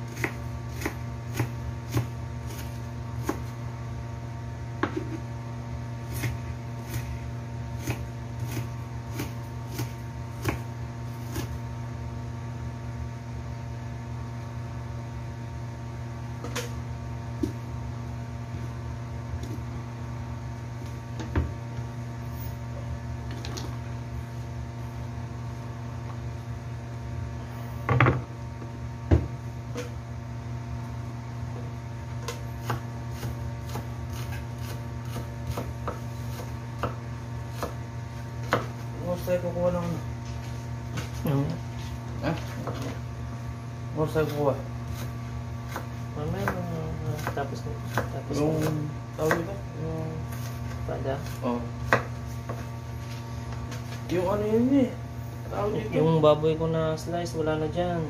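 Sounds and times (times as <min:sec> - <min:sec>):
steady low hum: 0:00.0 - 0:58.0
knife chopping on wooden board: 0:00.1 - 0:03.6, 0:04.8 - 0:05.2, 0:06.1 - 0:11.6, 0:17.4 - 0:17.6, 0:32.2 - 0:37.8, 0:38.4 - 0:38.9, 0:42.3 - 0:43.0, 0:44.2 - 0:49.6, 0:50.3 - 0:52.7.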